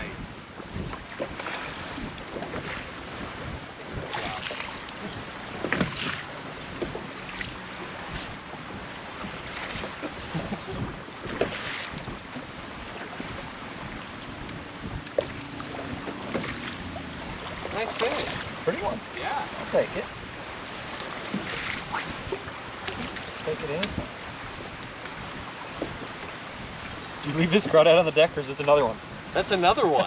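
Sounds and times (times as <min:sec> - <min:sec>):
wind on microphone: 0:00.0 - 0:27.2
waves lapping against boat hull: 0:00.0 - 0:30.0
fish splashing: 0:00.2 - 0:12.1.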